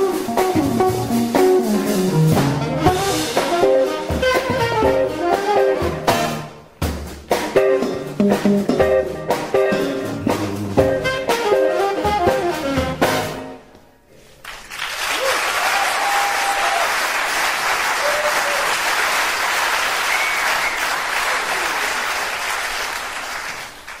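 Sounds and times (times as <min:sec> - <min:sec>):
audience applauding: 0:14.4 - 0:24.0.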